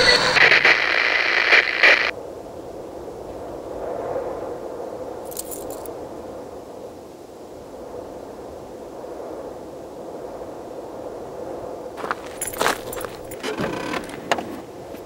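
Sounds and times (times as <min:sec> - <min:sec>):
light metallic jingle: 0:05.3 - 0:05.9, 0:12.2 - 0:13.5
rushing ambient noise: 0:12.0 - 0:15.0.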